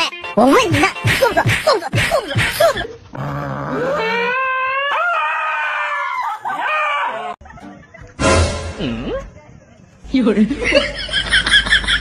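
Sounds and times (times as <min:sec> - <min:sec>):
dog howling: 0:03.2 - 0:07.4.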